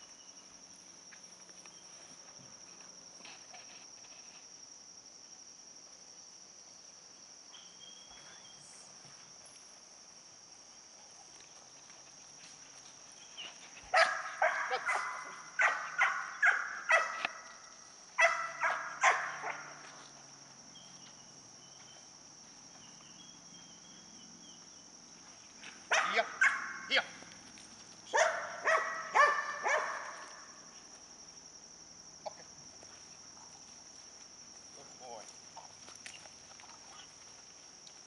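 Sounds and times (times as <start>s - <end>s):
dog barking: 13.9s - 17.4s, 18.2s - 19.8s, 25.9s - 26.9s, 28.1s - 30.4s.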